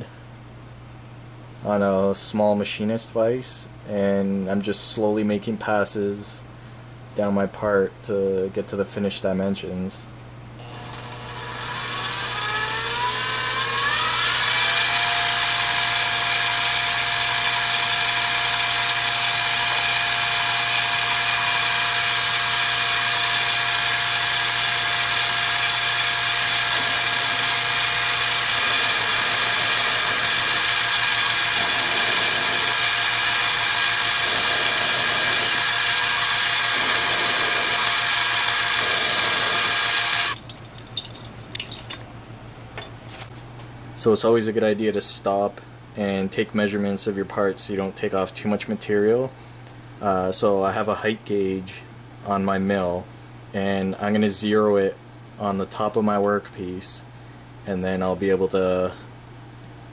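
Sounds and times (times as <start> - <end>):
milling machine whine: 10.6 - 42.0.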